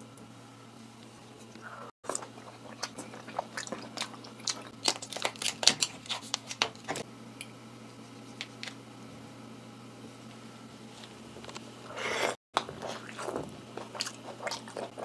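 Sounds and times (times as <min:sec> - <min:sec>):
lobster shell cracking: 0:03.9 - 0:06.7.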